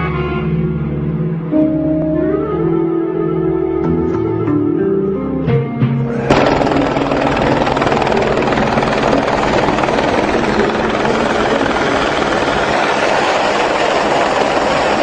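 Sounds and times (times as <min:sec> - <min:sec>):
helicopter rotor and engine: 0:06.2 - 0:15.0.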